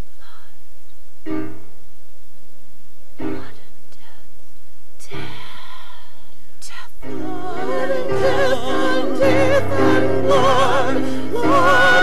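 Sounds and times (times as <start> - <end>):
slow piano chords: 1.2 - 1.8, 3.2 - 4.1, 7.0 - 12.0.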